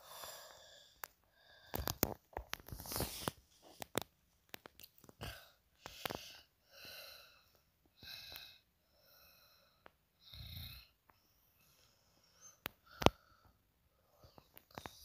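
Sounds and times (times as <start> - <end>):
person breathing softly: 0.0 - 2.2, 5.2 - 10.4, 11.1 - 15.0.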